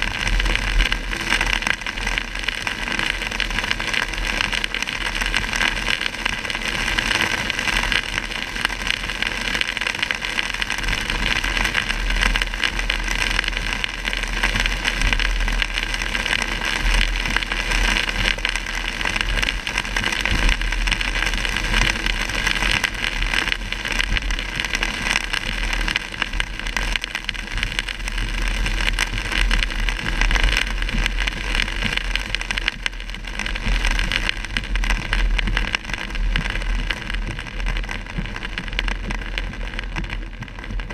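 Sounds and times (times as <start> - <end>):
low road rumble: 0.0 - 4.6
rain hissing on car roof: 0.0 - 40.9.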